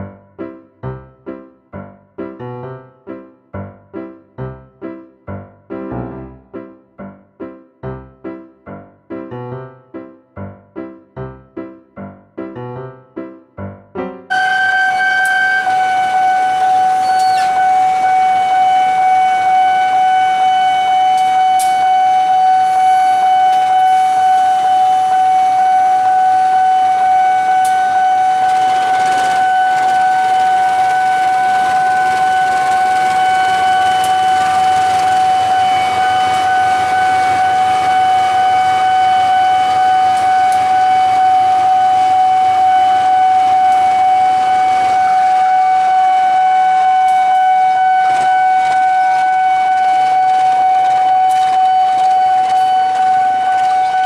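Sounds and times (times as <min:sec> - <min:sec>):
level crossing alarm tone: 0:13.6 - 0:54.0
diesel locomotive rumble: 0:14.0 - 0:54.0.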